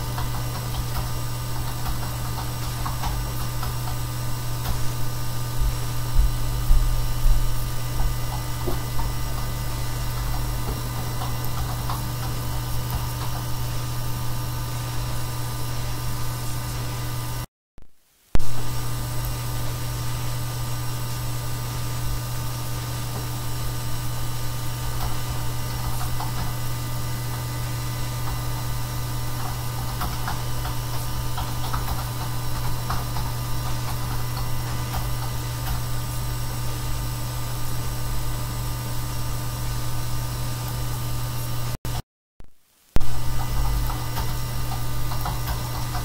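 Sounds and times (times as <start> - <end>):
low hum: 2.1 - 17.5
constant hiss: 18.0 - 40.8, 42.6 - 46.0.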